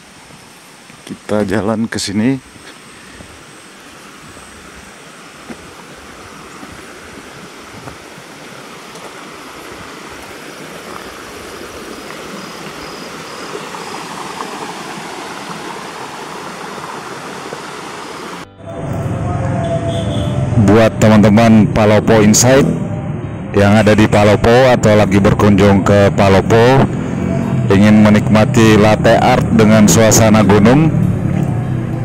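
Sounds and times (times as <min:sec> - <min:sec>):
flowing water rushing: 0:02.4 - 0:18.5.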